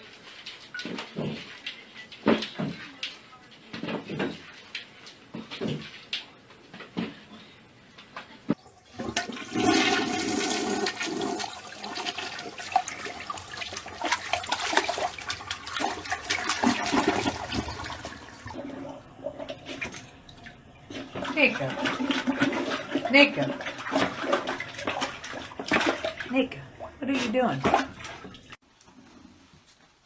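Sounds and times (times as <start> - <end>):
toilet flushing: 8.6 - 28.6.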